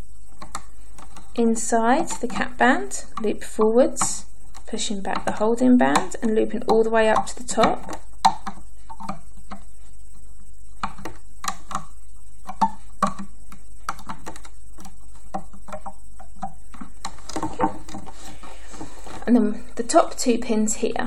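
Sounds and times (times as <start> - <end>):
loom hook clicking and tapping: 2.0 - 9.6.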